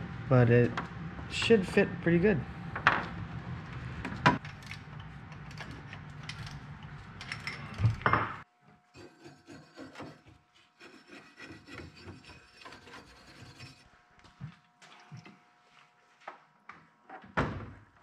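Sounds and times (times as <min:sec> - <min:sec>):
steady low hum: 0:00.0 - 0:16.6
tool clicking and scraping on metal: 0:08.9 - 0:13.9.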